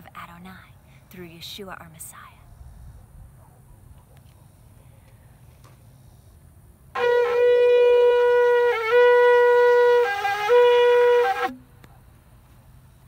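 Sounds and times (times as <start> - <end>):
ram's horn blast: 6.9 - 11.6.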